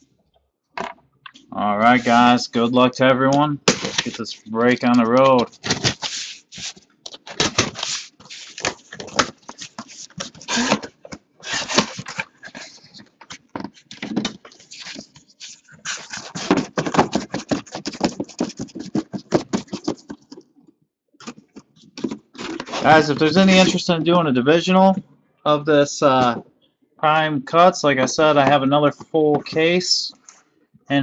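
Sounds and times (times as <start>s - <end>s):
cardboard rasping and scraping: 4.9s - 20.4s, 21.2s - 23.7s.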